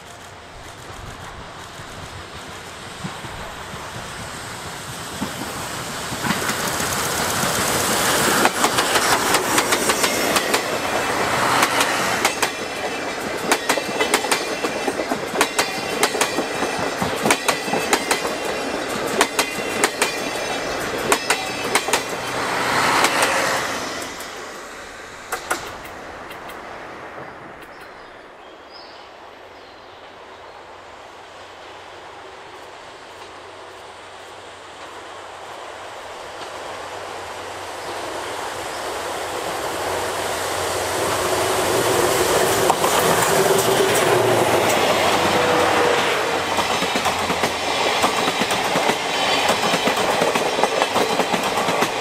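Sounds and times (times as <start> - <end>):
wheels clacking over rail joints: 0.0 - 28.0, 41.0 - 52.0
steam train passing: 0.0 - 52.0.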